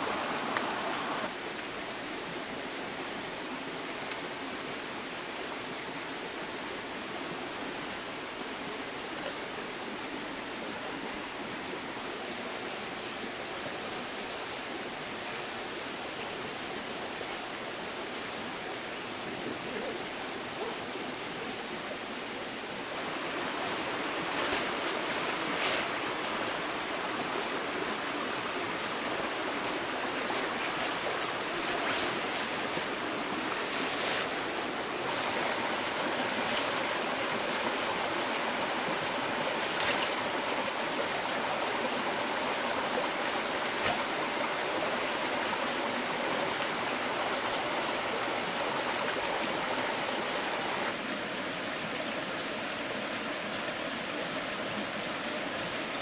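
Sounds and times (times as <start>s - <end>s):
stream flowing over rocks: 0.0s - 20.2s, 21.2s - 56.0s.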